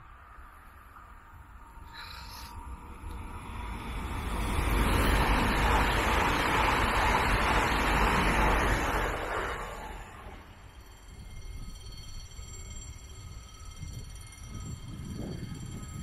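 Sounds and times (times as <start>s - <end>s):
train passing at speed: 0.0s - 16.0s
wind rumble on microphone: 11.1s - 16.0s.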